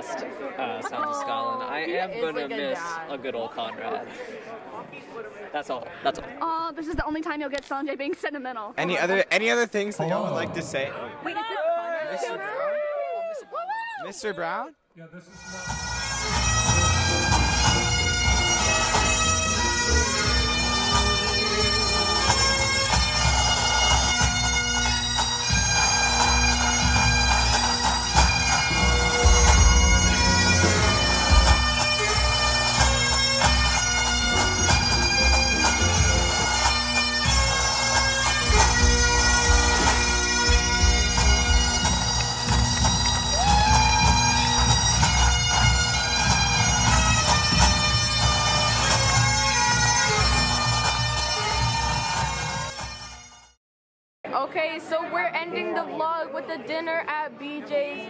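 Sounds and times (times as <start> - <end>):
bagpipes playing a tune: 15.3 - 53.6
pipe band drums beating: 15.4 - 53.6.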